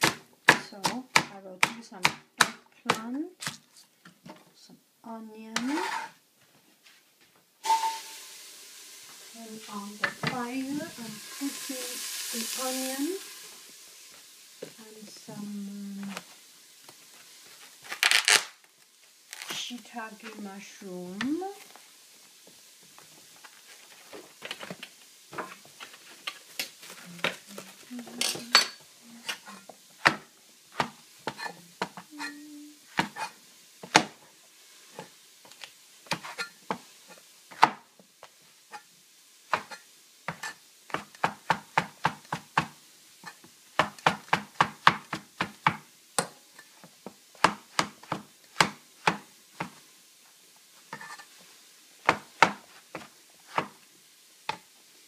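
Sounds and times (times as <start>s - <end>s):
cleaver chopping on plastic board: 0.0s - 3.0s.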